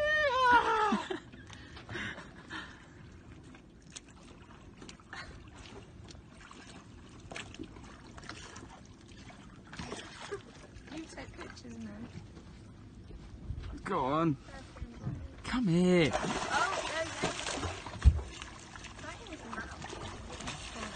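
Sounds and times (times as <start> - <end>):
whooping shout: 0.0 - 1.2
water lapping around boat: 0.0 - 20.9.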